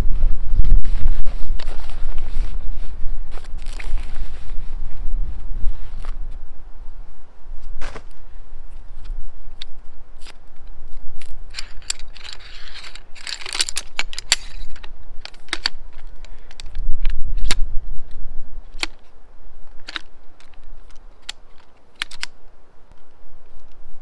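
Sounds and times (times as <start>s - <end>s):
folding chair frame clicking: 11.6s - 15.8s.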